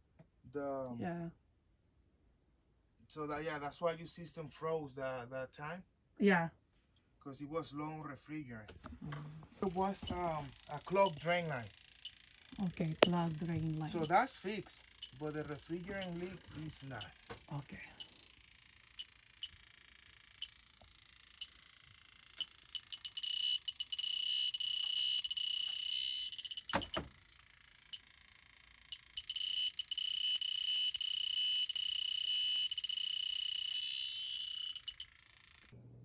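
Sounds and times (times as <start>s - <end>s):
high-pitched alarm tone: 9.6s - 35.7s
leak detector ticking: 9.6s - 35.8s.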